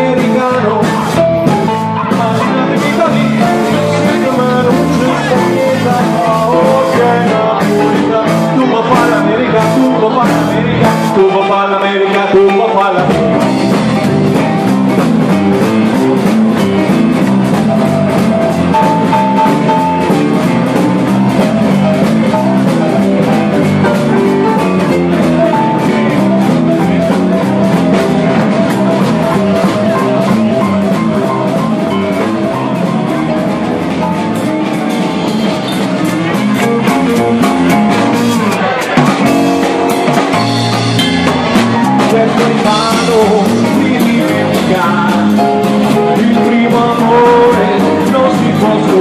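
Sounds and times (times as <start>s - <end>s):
swing band playing: 0.0s - 49.0s.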